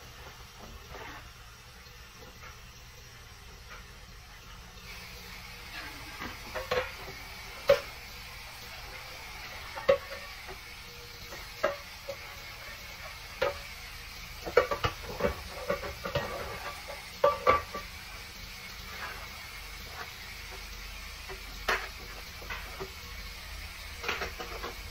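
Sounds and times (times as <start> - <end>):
steady hiss: 0.0 - 24.9
dishes clinking and clanking: 5.6 - 8.0, 9.4 - 13.7, 14.4 - 18.0, 21.3 - 23.0, 23.9 - 24.9.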